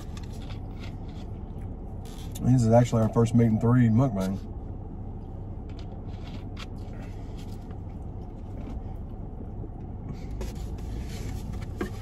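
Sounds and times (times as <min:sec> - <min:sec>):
low rumble inside car: 0:00.0 - 0:12.0.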